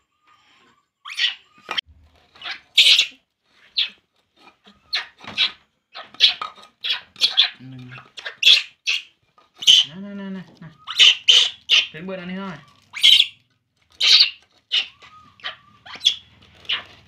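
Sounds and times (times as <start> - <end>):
baby monkey squealing: 1.0 - 1.8, 2.4 - 4.0, 4.8 - 9.9, 10.8 - 12.0, 12.6 - 13.4, 14.0 - 17.0.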